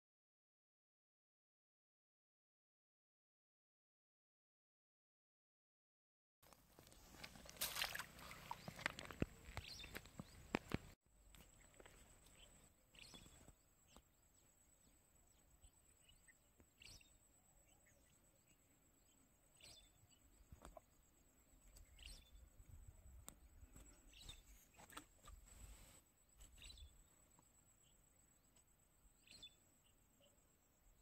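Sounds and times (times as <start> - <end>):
faint short bird chirps: 24.0 - 27.0.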